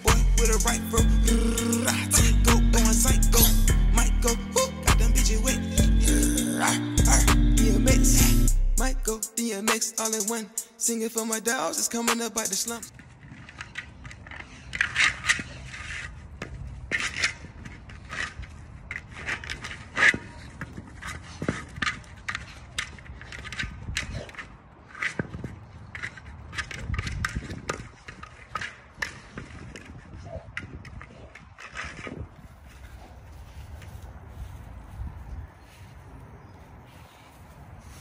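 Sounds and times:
dog paws scraping dirt: 0:12.1 - 0:38.0
ball rolling on dry grass: 0:12.9 - 0:38.0.

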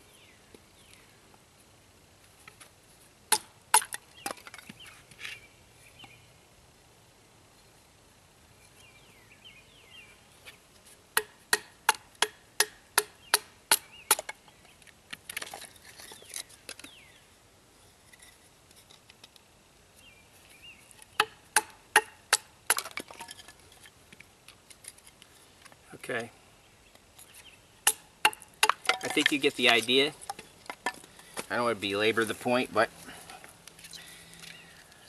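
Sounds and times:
birds chirping: 0:08.6 - 0:10.5, 0:16.0 - 0:17.4, 0:25.9 - 0:35.0
wood crackling: 0:10.3 - 0:26.3, 0:26.9 - 0:35.0
knife splitting wood: 0:11.2 - 0:14.4, 0:21.0 - 0:23.5, 0:27.8 - 0:31.4.

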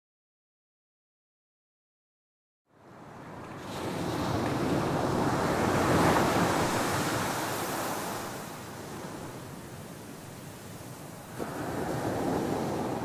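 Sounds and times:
wave breaking on a beach: 0:02.9 - 0:13.0.

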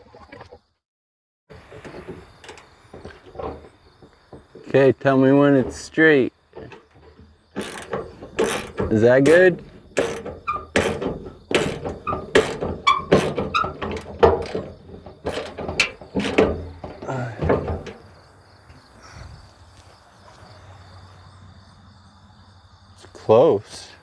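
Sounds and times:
knocks on sheet-metal fender: 0:07.6 - 0:18.0.

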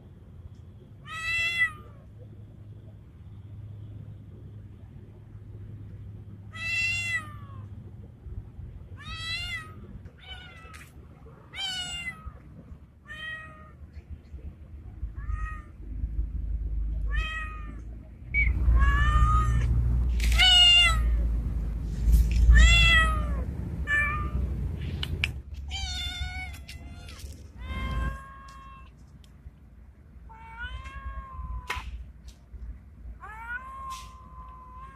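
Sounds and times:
cat meowing: 0:01.0 - 0:02.0, 0:06.5 - 0:07.7, 0:11.5 - 0:12.4, 0:17.1 - 0:17.8, 0:18.7 - 0:19.7, 0:20.3 - 0:21.2, 0:22.5 - 0:24.4, 0:25.7 - 0:28.9, 0:30.3 - 0:31.8, 0:33.2 - 0:34.9.

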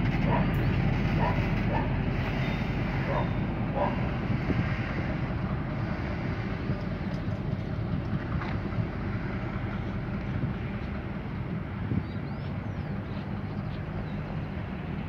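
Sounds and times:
train wheels on rails: 0:00.0 - 0:11.4
diesel locomotive rumble: 0:00.0 - 0:15.0.

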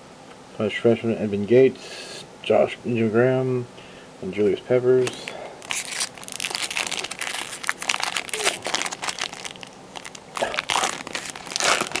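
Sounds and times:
foil wrapper crinkling and tearing: 0:05.0 - 0:12.0.

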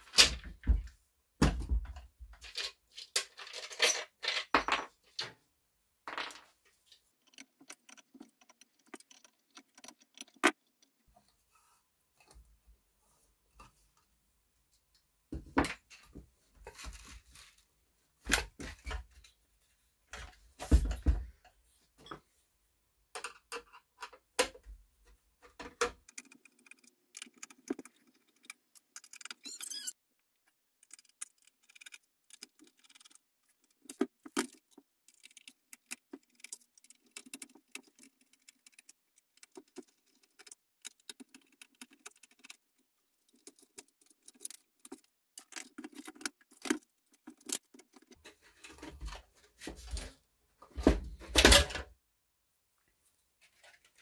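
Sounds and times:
plastic and metal parts rattling: 0:01.4 - 0:05.4, 0:06.1 - 0:11.0, 0:25.4 - 0:50.2, 0:50.8 - 0:51.8.

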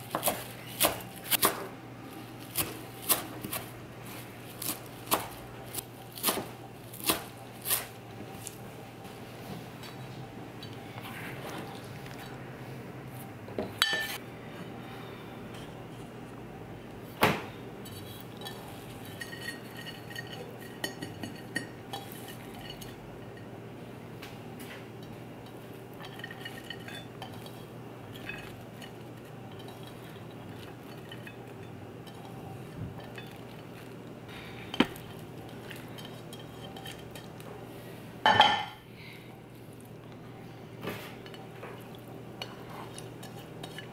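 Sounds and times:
ceramic dishes clinking: 0:13.8 - 0:14.2, 0:18.4 - 0:23.5, 0:25.0 - 0:32.4, 0:38.3 - 0:38.8.

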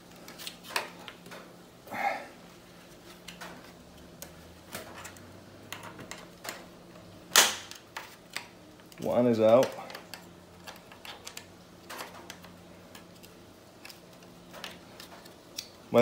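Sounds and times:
loud sharp plastic crack: 0:07.3 - 0:08.5.

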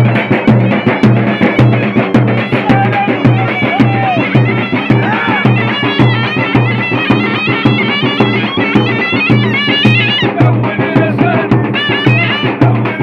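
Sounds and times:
drums beaten with sticks: 0:00.0 - 0:13.0
shrill reedy wind instrument: 0:00.0 - 0:13.0.

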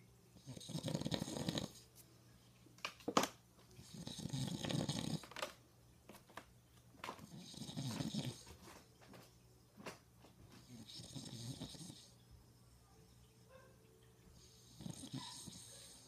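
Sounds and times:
man snoring: 0:00.5 - 0:01.8, 0:10.9 - 0:12.0.

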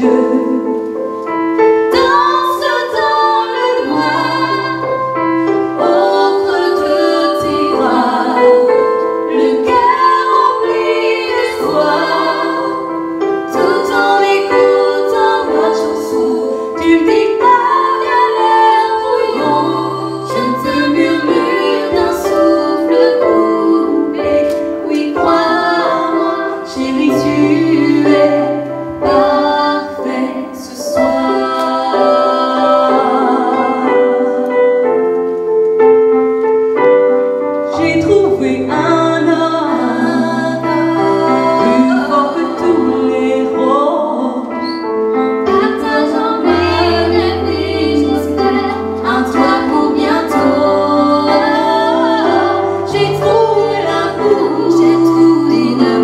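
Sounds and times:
piano accompaniment: 0:00.0 - 0:56.0
woman singing into microphone: 0:37.7 - 0:44.8, 0:45.5 - 0:56.0.

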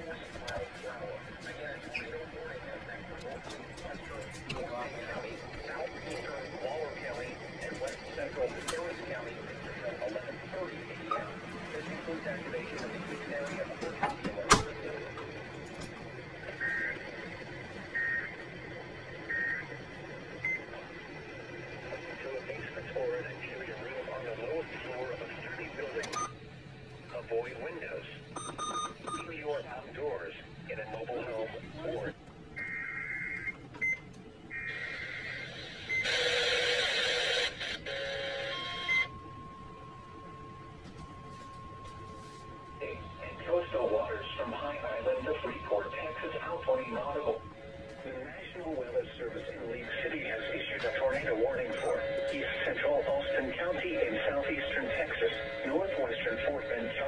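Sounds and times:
steady warning alarm tone: 0:00.0 - 0:57.0
two-tone electronic beeps: 0:17.9 - 0:18.4, 0:26.1 - 0:26.4, 0:28.4 - 0:29.3, 0:37.8 - 0:48.2, 0:50.8 - 0:57.0.

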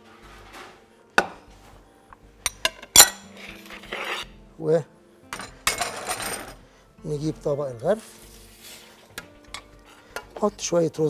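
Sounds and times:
metal utensils clinking on cookware: 0:02.5 - 0:04.2, 0:05.3 - 0:06.6, 0:09.4 - 0:10.5
utensil scraping: 0:03.1 - 0:04.4.

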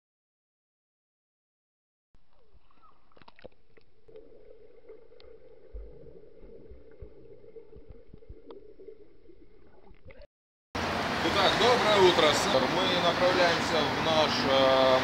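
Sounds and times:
underwater water movement and bubbling: 0:02.2 - 0:10.3.

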